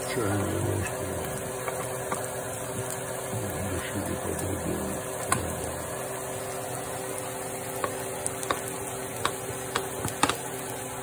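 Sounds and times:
onions sizzling in a frying pan: 0.0 - 11.0
spice bottle clicks and taps: 7.8 - 10.4.

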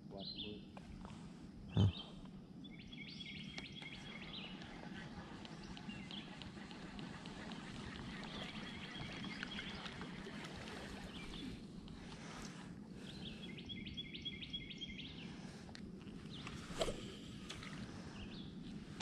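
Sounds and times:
faint steady hum: 0.0 - 19.0
birds singing: 0.1 - 0.7, 1.7 - 18.6
rapid repeated bird chirps: 1.7 - 15.4.

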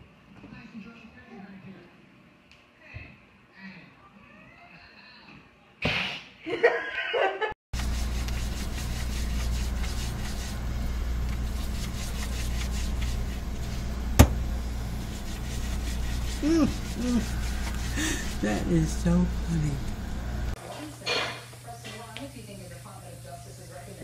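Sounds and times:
refrigerator humming: 7.8 - 20.6
short wavy voice: 16.4 - 17.3.

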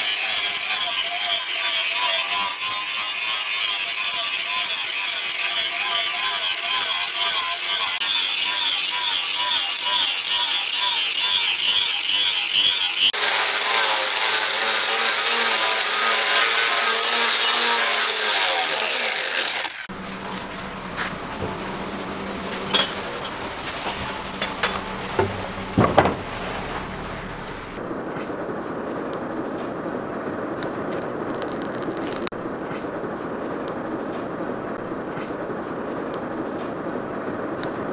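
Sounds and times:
angle grinder grinding steel: 0.0 - 27.8
clicks and knocks: 20.1 - 27.8.

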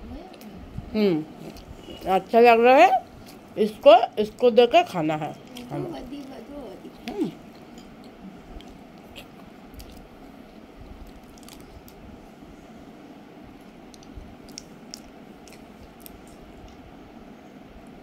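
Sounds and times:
low background hum: 0.0 - 18.0
person chewing: 5.4 - 10.1, 11.0 - 12.0, 13.7 - 16.8.

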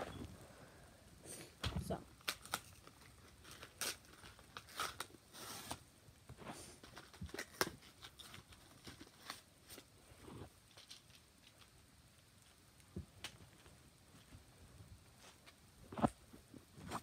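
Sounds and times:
plastic packaging crinkling: 2.1 - 5.8, 6.8 - 9.9, 10.6 - 11.8.

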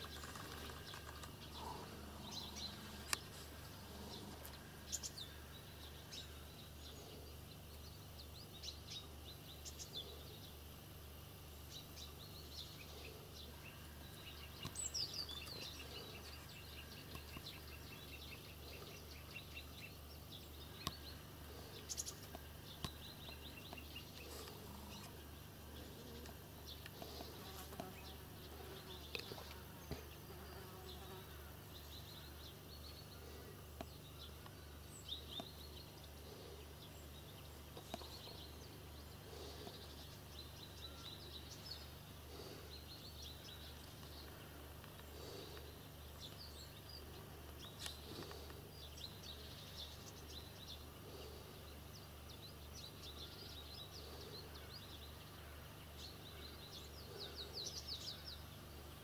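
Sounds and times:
small clicks and rustles: 0.0 - 1.5
buzzing insects: 20.6 - 46.2.

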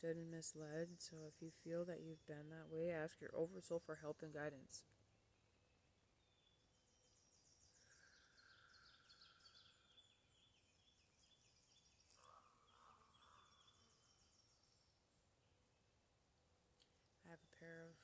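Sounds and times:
faint birds chirping: 0.0 - 18.0
longer lower bird calls: 5.4 - 15.2.

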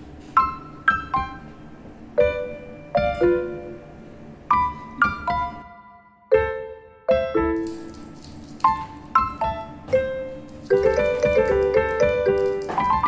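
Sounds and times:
gentle piano melody: 0.0 - 13.0.

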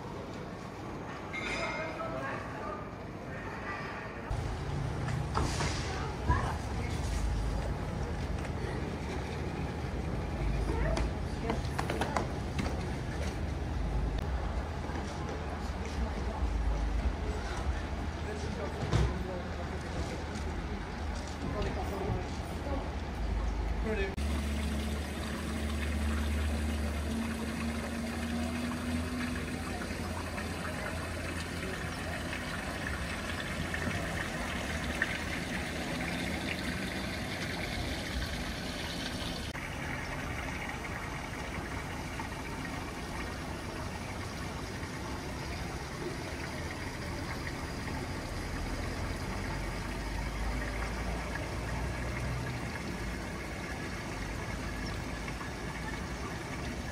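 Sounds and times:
water trickling in fountain: 4.3 - 56.9.

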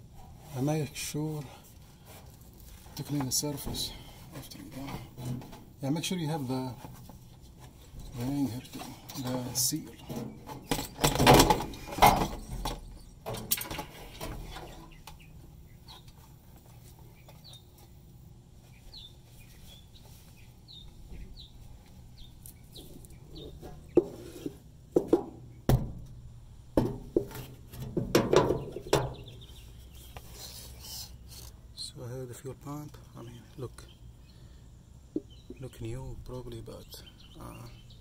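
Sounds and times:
rustling: 0.0 - 15.1, 18.6 - 24.7
handling clatter and knocks: 2.6 - 5.8, 6.8 - 15.2, 26.8 - 29.6
small bird chirping: 14.6 - 16.3, 17.0 - 17.9, 18.6 - 24.0, 28.6 - 31.4, 33.1 - 38.0.

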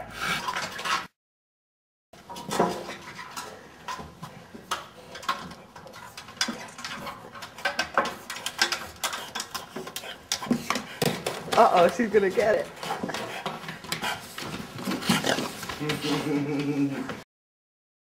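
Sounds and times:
dog claws scraping ladder rungs: 2.3 - 15.9.

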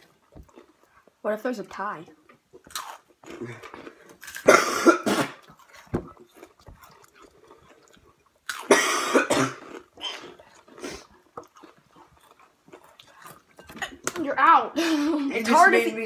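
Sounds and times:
boy coughing: 4.4 - 5.4, 8.7 - 10.3.

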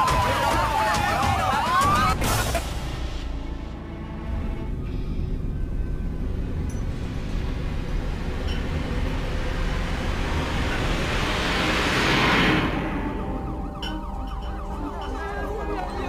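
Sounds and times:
low rumble: 2.9 - 16.0
rushing noise: 4.6 - 16.0.

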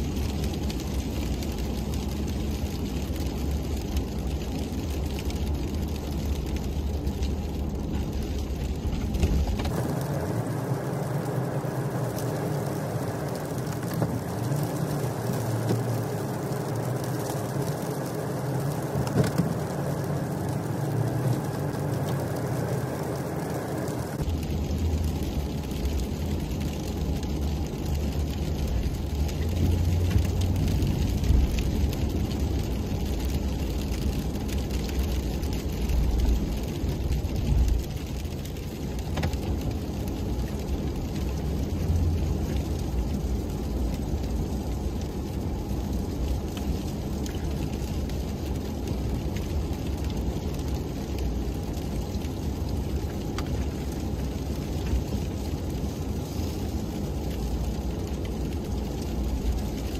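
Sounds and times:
truck engine rumble from inside cab: 0.0 - 59.9.

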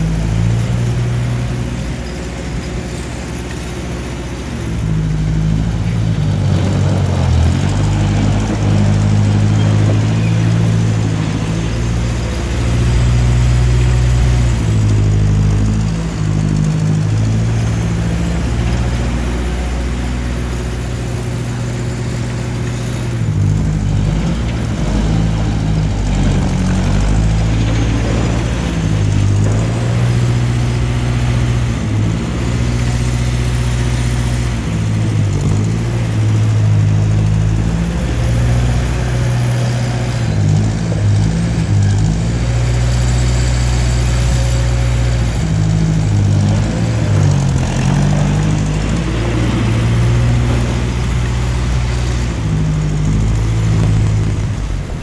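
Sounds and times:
tractor engine running: 0.0 - 55.0.

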